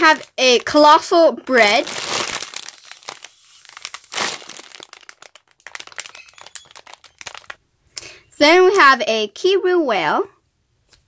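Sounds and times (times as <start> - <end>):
plastic packaging crinkling: 0.0 - 7.6.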